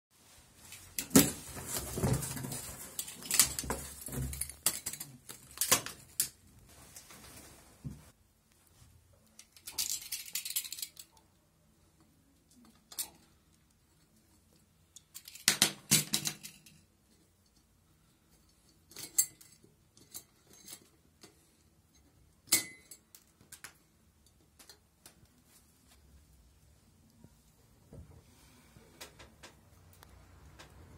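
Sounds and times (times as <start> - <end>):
scraping rustle: 0.2 - 5.2
metal parts clinking: 2.8 - 6.3, 9.4 - 11.2.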